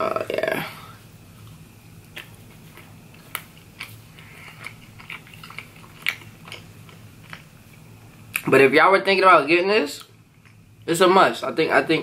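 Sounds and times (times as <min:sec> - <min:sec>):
crunchy chewing: 0:01.3 - 0:08.5.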